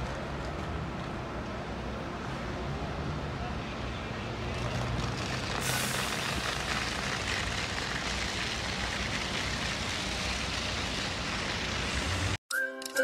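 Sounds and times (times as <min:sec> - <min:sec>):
engine rumble: 0:00.0 - 0:12.4
hiss: 0:05.0 - 0:12.4.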